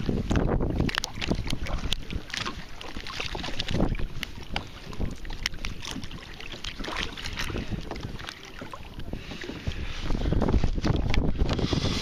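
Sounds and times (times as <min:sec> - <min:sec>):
water lapping against hull: 0:00.0 - 0:12.0
wind buffeting microphone: 0:00.0 - 0:12.0.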